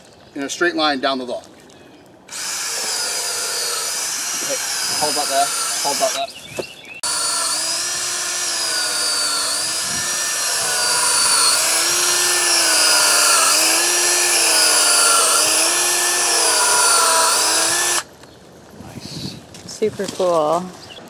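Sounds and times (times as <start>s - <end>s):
power drill boring into wood: 2.3s - 6.3s, 7.0s - 18.1s.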